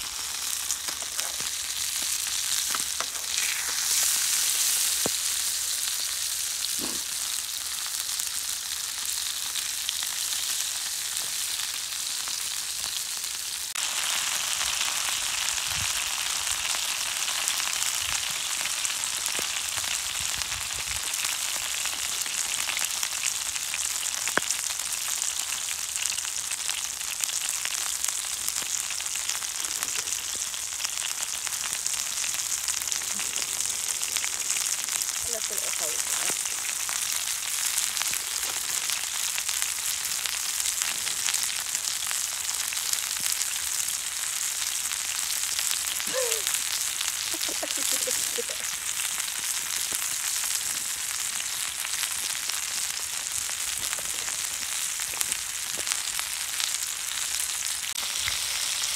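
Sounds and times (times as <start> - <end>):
popping: 0.0 - 5.6
food sizzling: 0.0 - 58.9.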